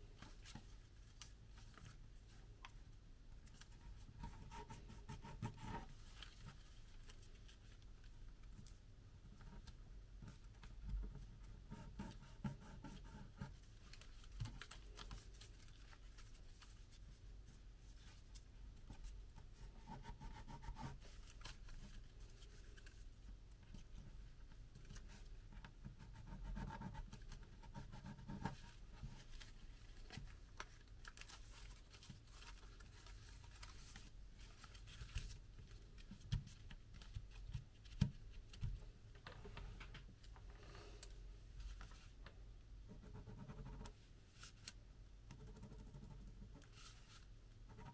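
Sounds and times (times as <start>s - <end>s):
paper rustling and crinkling: 5.8s - 8.8s, 13.4s - 19.2s, 21.0s - 24.0s, 28.5s - 40.4s.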